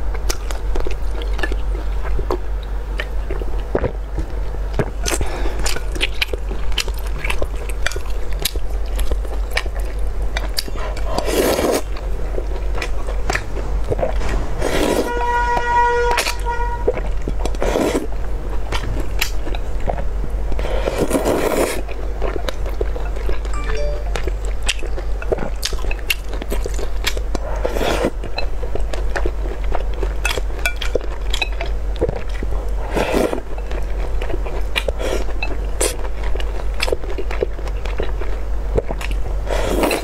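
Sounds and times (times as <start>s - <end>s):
wet chewing: 0.0s - 15.1s, 16.1s - 23.6s
noodle slurping: 11.0s - 11.9s, 14.6s - 15.1s, 20.7s - 21.9s
low hum: 23.4s - 25.1s.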